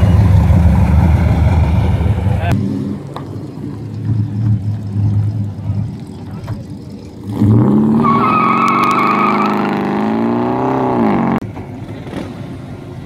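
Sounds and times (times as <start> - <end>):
quiet engine sound: 0.0 - 8.8
car engine accelerating: 0.0 - 13.0
tyre squeal: 7.9 - 9.8.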